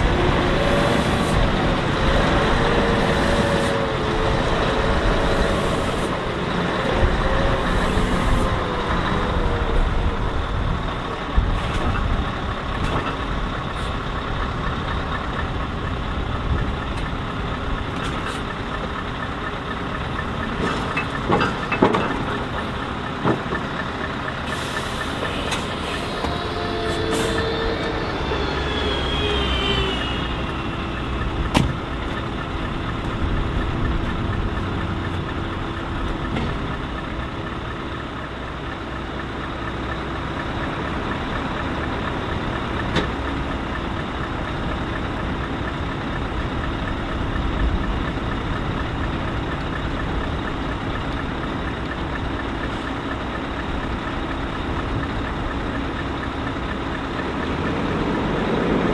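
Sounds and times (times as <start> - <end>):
diesel truck engine running: 0.0 - 58.9
brief rising whine: 26.0 - 31.2.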